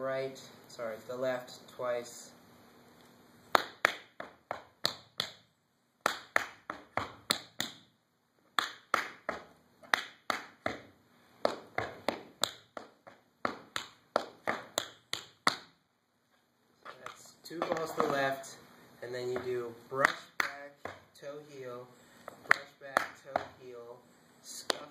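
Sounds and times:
tap shoes on wooden floor: 0:10.6 - 0:15.6, 0:16.9 - 0:18.3, 0:19.3 - 0:21.1.

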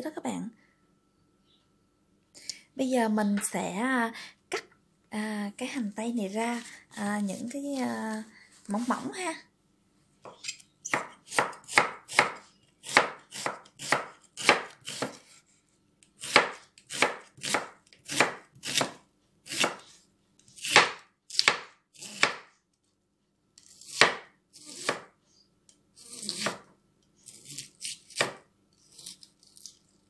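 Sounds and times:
knife slicing onion on board: 0:10.2 - 0:15.4, 0:16.2 - 0:22.5, 0:23.6 - 0:25.1, 0:26.0 - 0:29.8.

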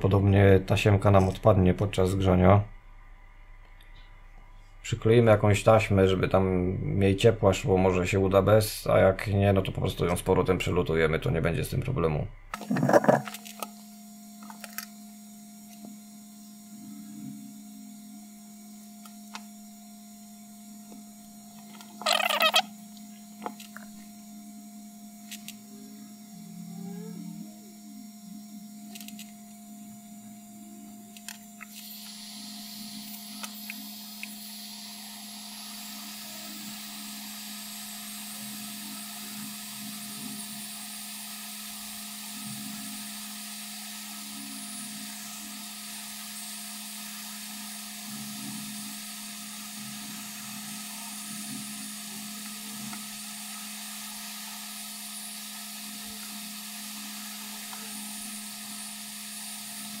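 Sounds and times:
steady low hum: 0:00.0 - 1:00.0
hot-air gun blowing: 0:21.6 - 0:22.8, 0:31.2 - 1:00.0.

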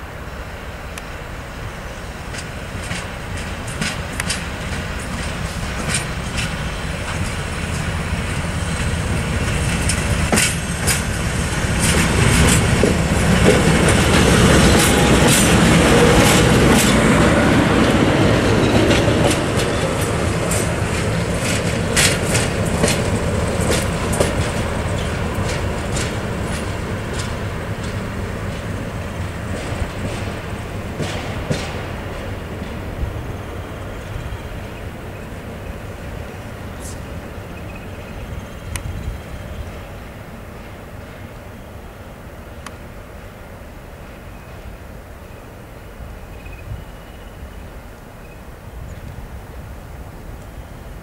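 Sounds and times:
diesel locomotive engine rumble: 0:00.0 - 0:51.0
wheels clicking over rail joints: 0:02.2 - 0:39.8.

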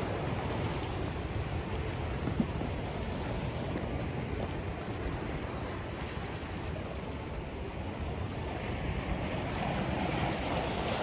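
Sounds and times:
waves breaking against rocks: 0:00.0 - 0:11.0
wind rumbling on microphone: 0:00.0 - 0:11.0.

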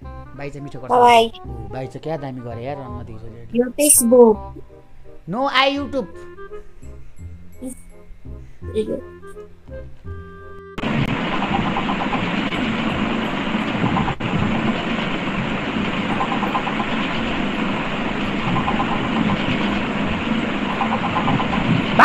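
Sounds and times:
musical tones: 0:00.4 - 0:11.0
fast rhythmic clatter: 0:10.8 - 0:22.0
loud steady rumbling: 0:10.8 - 0:22.0.

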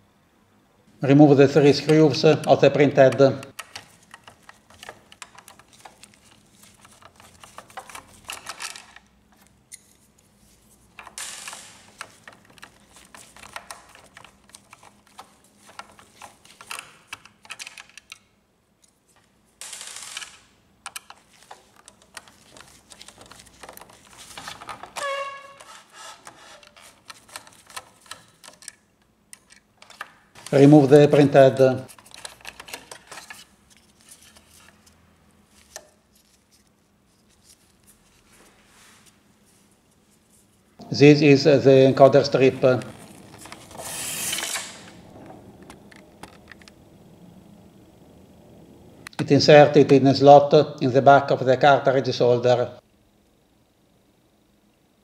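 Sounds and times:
short squeak: 0:25.0 - 0:26.6.

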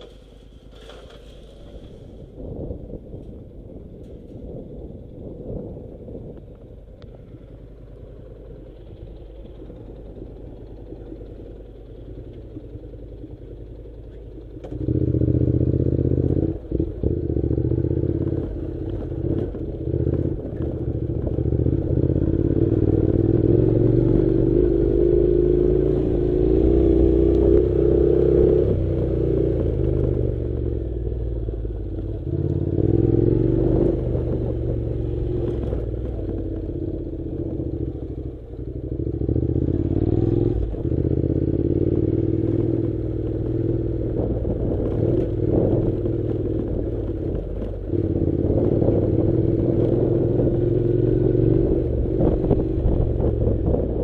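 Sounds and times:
clattering on rough gravel: 0:00.0 - 0:02.1
motorcycle engine: 0:00.0 - 0:54.0.

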